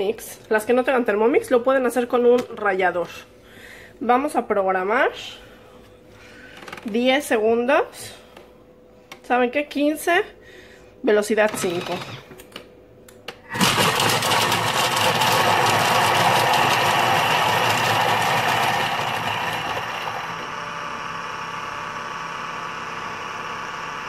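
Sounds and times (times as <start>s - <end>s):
food processor blade chopping onion: 11.5s - 12.4s, 13.4s - 20.5s.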